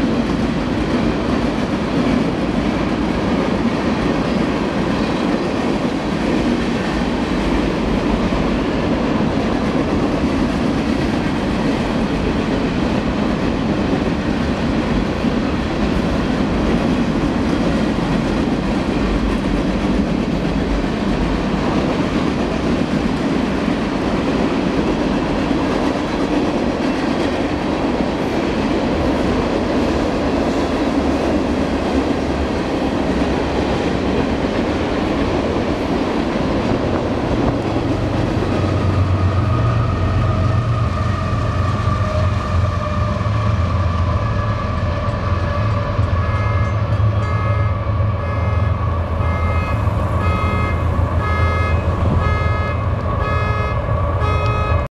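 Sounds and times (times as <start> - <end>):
diesel locomotive drone: 0.0 - 54.9
freight cars rumbling over rails: 0.0 - 54.9
crossing bell ringing: 46.0 - 54.9.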